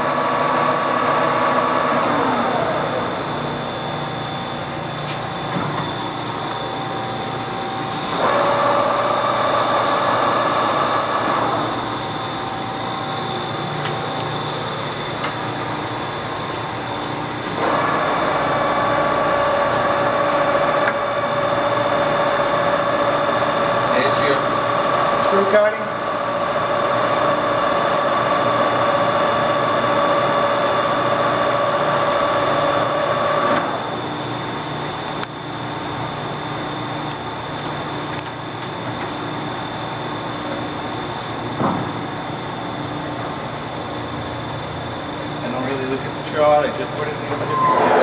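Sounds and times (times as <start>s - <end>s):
lathe gear whine: 0.0s - 48.0s
lathe winding down: 5.8s - 33.8s.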